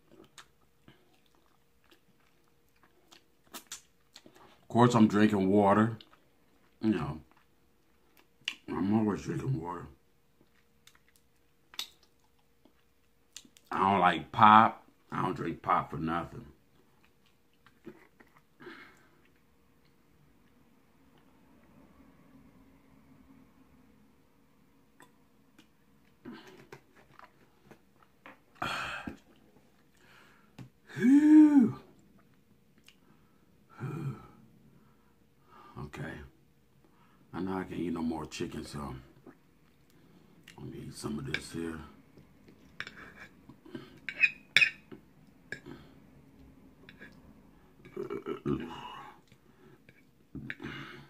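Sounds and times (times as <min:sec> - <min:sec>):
fork clinking and scraping plate: 0:44.1 - 0:44.8.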